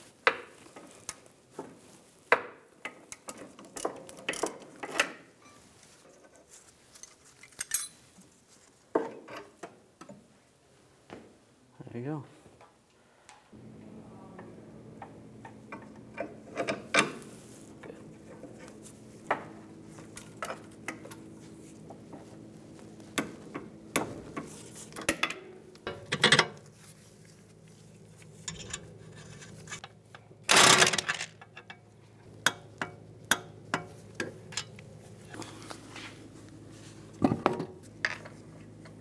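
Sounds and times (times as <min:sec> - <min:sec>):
faint steady hum: 0:00.0 - 0:39.0
wrench clicks and metal clinks: 0:07.4 - 0:08.0, 0:28.4 - 0:28.9.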